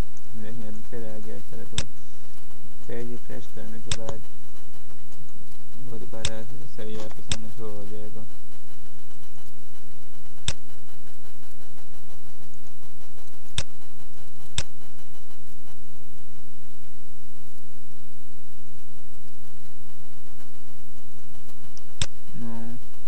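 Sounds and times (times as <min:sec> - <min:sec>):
electrical mains hum: 0:00.0 - 0:23.0
computer mouse clicks: 0:03.9 - 0:04.2.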